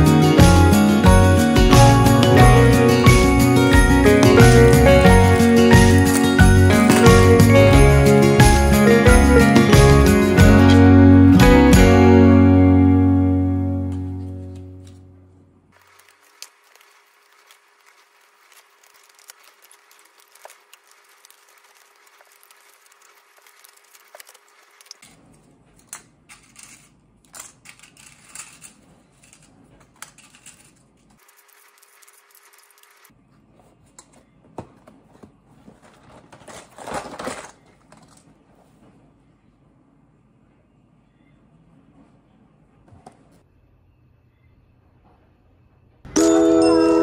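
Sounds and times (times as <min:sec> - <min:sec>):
cardboard and paper rustling: 0:15.8 - 0:26.8, 0:27.7 - 0:39.0
rustling scrape: 0:27.8 - 0:30.9
plastic boxes set into cardboard box: 0:34.6 - 0:38.2.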